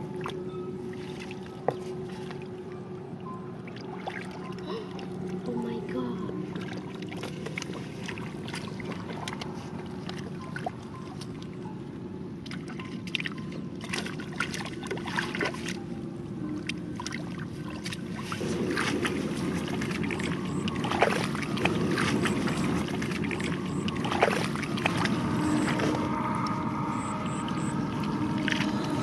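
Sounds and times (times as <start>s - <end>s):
fish thrashing splashes and slaps: 12.4s - 15.8s, 16.6s - 26.1s.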